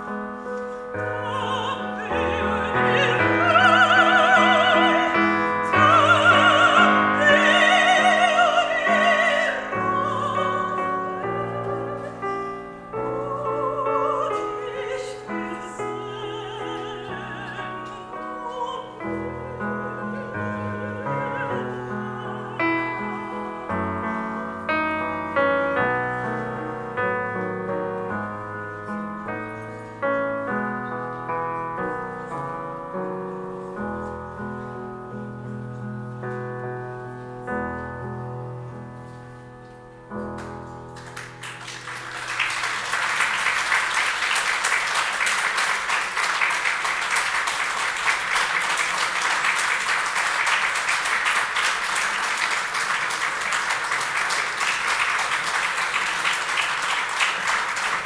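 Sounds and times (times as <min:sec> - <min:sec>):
grand piano playing: 0:00.0 - 0:58.0
audience applause: 0:41.0 - 0:58.0.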